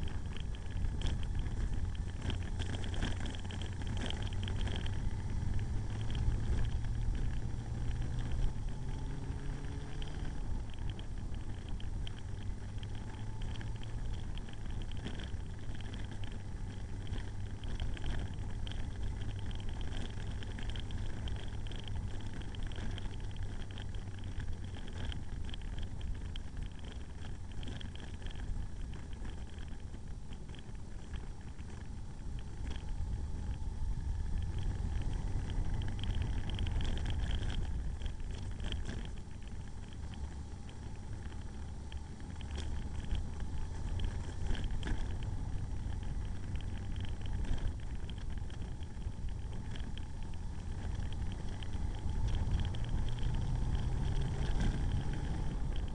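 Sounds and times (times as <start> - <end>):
heavy low rumble: 0.0 - 55.9
motorcycle engine riding: 0.0 - 55.9.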